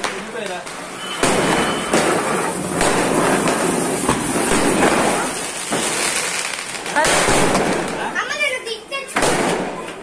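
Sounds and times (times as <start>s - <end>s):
firecrackers crackling: 0.0s - 10.0s.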